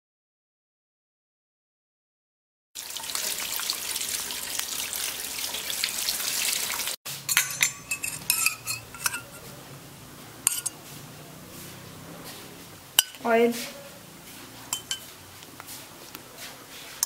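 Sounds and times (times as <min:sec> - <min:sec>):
tap water running into bowl: 0:02.8 - 0:07.0
metallic clinks: 0:07.3 - 0:09.4.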